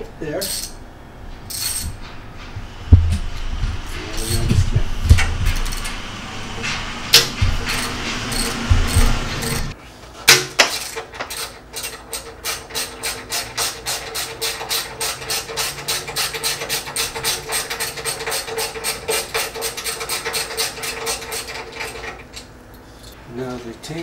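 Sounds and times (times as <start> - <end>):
ratchet wrench clicking: 10.7 - 23.2.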